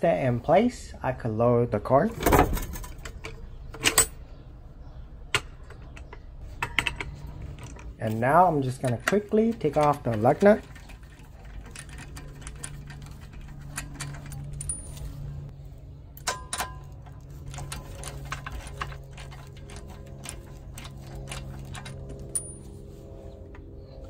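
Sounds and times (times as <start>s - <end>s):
low steady hum: 0.0s - 24.0s
metallic clicks of wrench: 5.3s - 15.1s
ringing metal clink: 11.4s - 15.4s, 16.2s - 22.8s.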